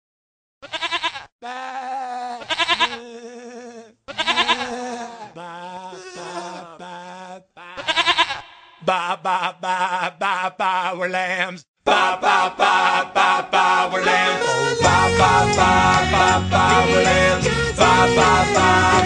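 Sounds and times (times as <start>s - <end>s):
sheep-like bleating: 0.6s - 8.8s.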